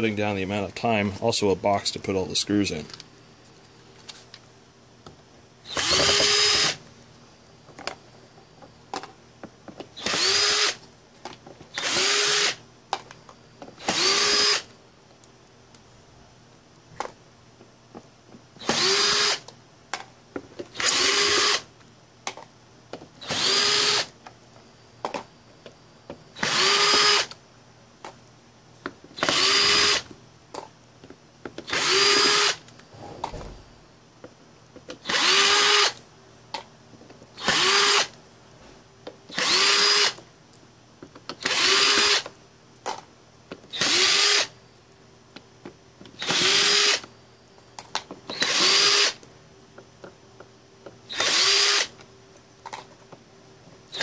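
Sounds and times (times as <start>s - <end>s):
power drill backing out screws: 5.7s - 6.8s.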